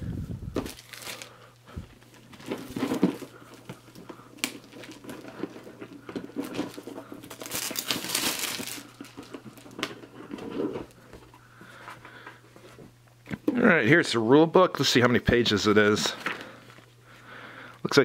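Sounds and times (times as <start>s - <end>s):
plastic shrink-wrap crinkling: 0.6s - 1.5s, 2.1s - 10.6s.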